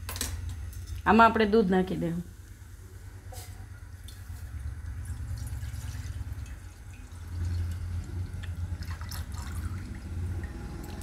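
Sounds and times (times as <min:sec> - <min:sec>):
milk pouring into saucepan: 0:04.0 - 0:11.0.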